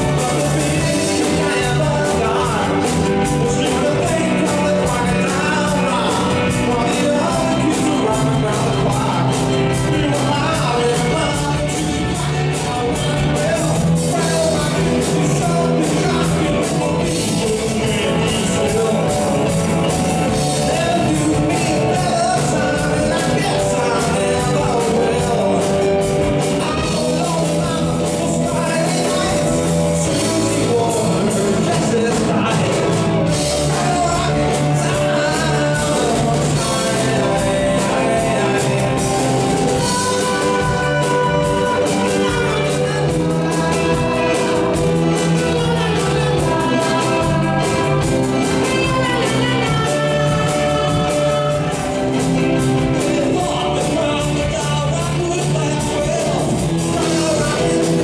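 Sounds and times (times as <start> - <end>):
bass guitar: 0.0 - 58.0
drums with fast cymbal beat: 0.0 - 58.0
electric guitar: 0.0 - 58.0
piano and keyboards: 0.0 - 58.0.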